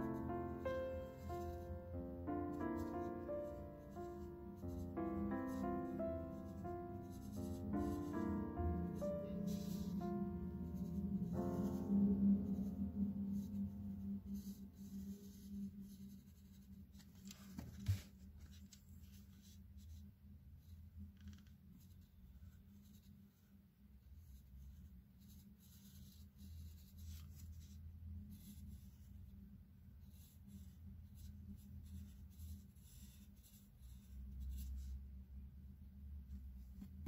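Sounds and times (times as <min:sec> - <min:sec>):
piano music: 0:00.0 - 0:16.6
pen scratching on paper: 0:02.8 - 0:10.0, 0:25.2 - 0:28.6, 0:30.1 - 0:34.9.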